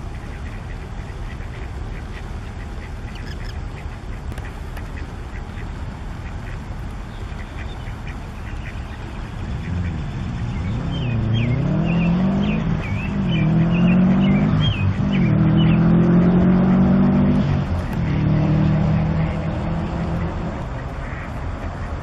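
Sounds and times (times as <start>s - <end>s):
motor engine changing speed: 8.9s - 21.6s.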